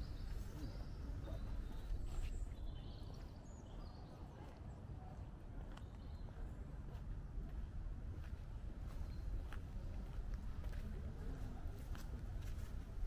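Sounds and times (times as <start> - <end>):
small birds chirping: 0.0 - 6.6
footsteps walking: 11.8 - 13.0.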